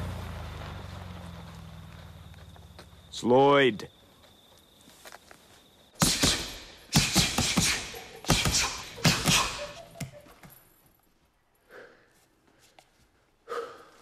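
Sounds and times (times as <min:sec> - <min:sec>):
gloves punching heavy bag: 0:06.0 - 0:09.8.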